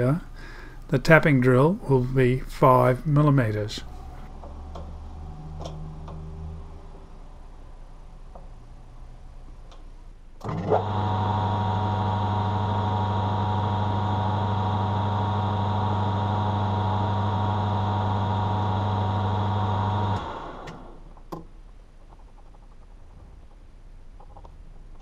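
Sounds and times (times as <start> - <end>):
lathe motor humming and whining: 10.4 - 21.0.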